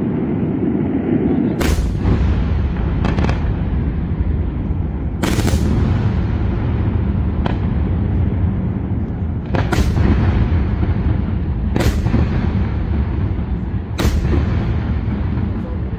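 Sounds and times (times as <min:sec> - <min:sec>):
fireworks booming: 0:00.0 - 0:15.9
fireworks cracking reports: 0:00.0 - 0:15.9.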